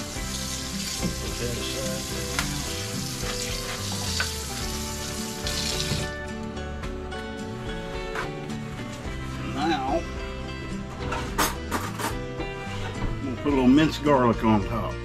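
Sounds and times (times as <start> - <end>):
faucet running into a steel sink: 0.0 - 6.1.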